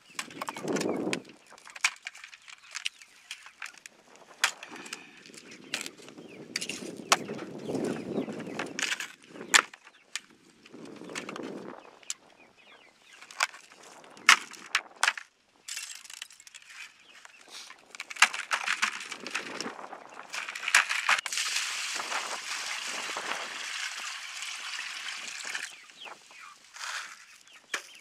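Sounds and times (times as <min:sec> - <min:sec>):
ice and plastic cracking: 0:00.1 - 0:07.3, 0:08.6 - 0:11.6, 0:13.2 - 0:16.9, 0:17.8 - 0:25.9, 0:26.7 - 0:28.0
handling rustle: 0:00.1 - 0:07.9, 0:13.2 - 0:21.3, 0:25.5 - 0:28.0.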